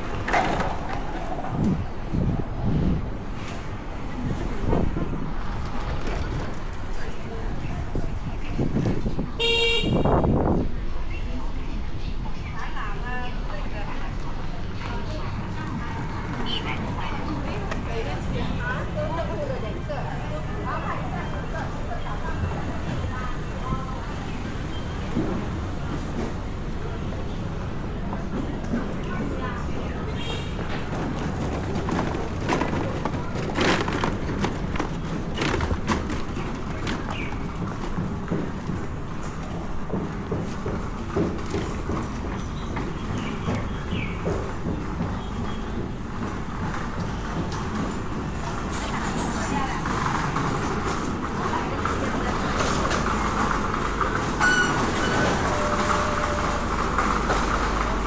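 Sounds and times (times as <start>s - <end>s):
faint voices: 0.0s - 58.0s
vehicle rumbling: 0.0s - 58.0s
knocks and clacks: 30.6s - 52.0s.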